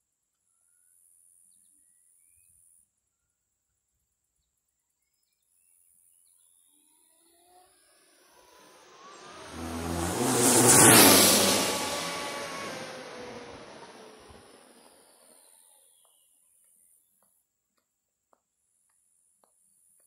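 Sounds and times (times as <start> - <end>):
faint bird chirps: 0.4 - 3.5
fast vehicle approaching: 7.3 - 15.8.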